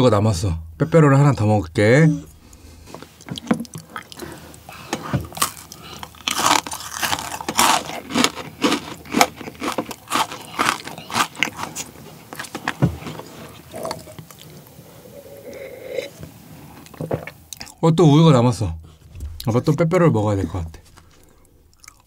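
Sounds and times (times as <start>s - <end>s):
crunching and chewing biscuit: 3.1s - 14.8s, 20.9s - 22.0s.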